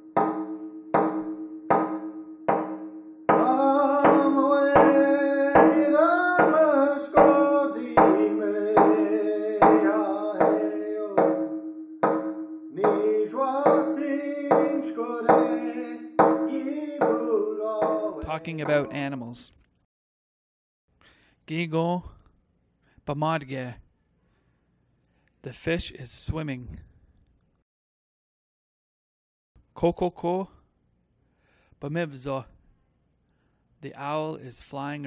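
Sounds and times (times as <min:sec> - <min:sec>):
steady drumbeat: 0:00.0 - 0:19.0
person singing: 0:03.3 - 0:11.5, 0:12.8 - 0:19.0.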